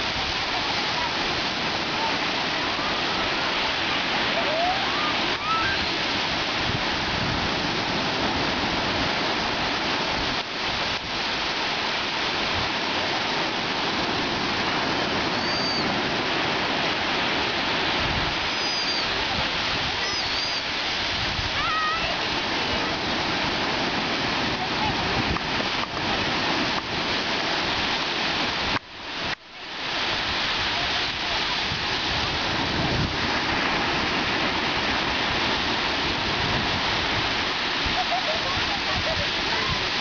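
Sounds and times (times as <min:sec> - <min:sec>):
sea surf washing: 0:00.0 - 0:40.0
faint high gliding cries: 0:18.5 - 0:19.1.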